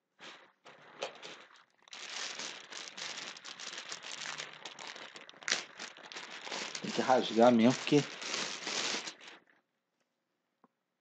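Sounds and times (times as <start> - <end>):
plastic bags crinkling: 0.7 - 9.4.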